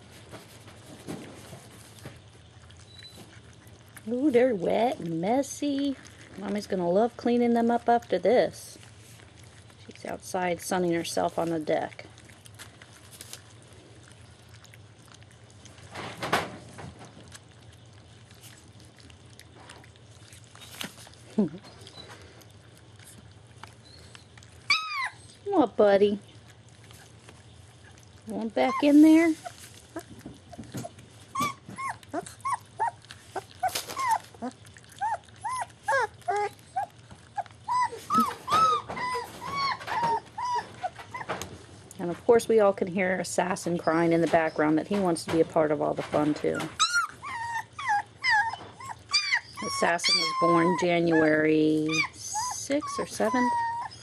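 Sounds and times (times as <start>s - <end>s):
low steady hum: 0.0s - 54.0s
puppies chewing and smacking: 0.0s - 54.0s
dog whining: 23.7s - 25.5s, 28.6s - 41.5s, 46.5s - 54.0s.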